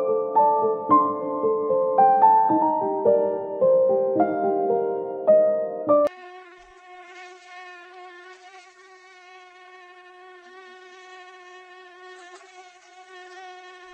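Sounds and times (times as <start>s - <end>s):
mosquito wing whine: 6.1s - 13.9s.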